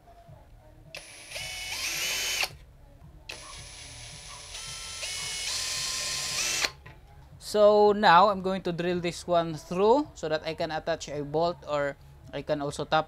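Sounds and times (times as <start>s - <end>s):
power drill motor whine: 1.0s - 2.5s, 3.3s - 6.8s.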